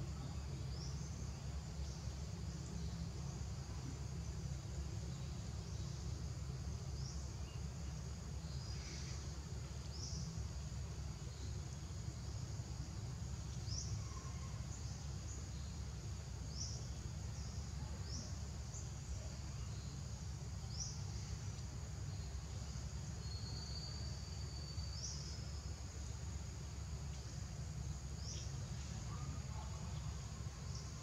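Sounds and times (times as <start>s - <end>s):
high-pitched insect chorus: 0.0s - 31.0s.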